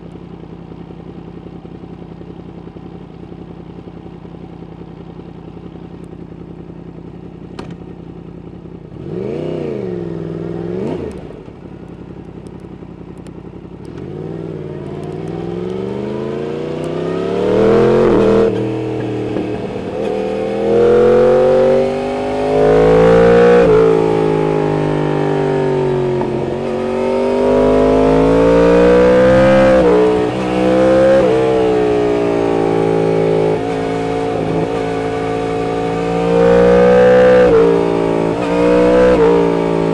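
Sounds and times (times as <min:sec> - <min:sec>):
motorcycle engine revving: 0:00.3 - 0:39.9.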